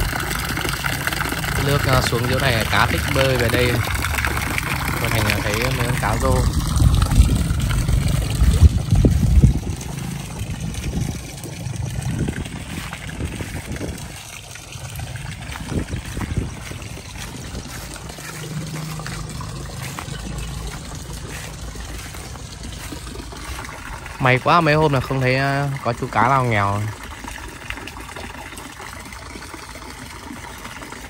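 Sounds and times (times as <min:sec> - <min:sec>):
water trickling into pond: 0:00.0 - 0:31.0
low microphone rumble: 0:03.9 - 0:24.2.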